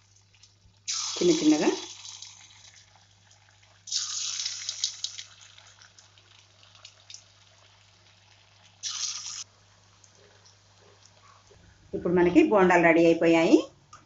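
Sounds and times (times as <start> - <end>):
batter sizzling in hot oil: 0.0 - 11.2.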